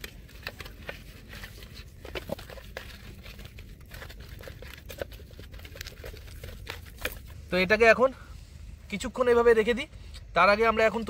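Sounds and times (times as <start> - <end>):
hands handling fish: 0.0 - 7.4.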